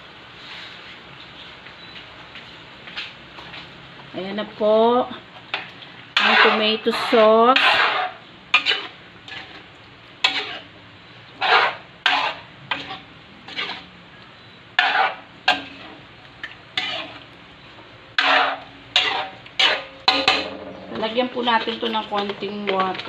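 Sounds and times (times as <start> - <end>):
metal spatula scraping a wok: 5.5 - 13.9, 14.7 - 16.1, 16.7 - 17.3, 18.1 - 23.0.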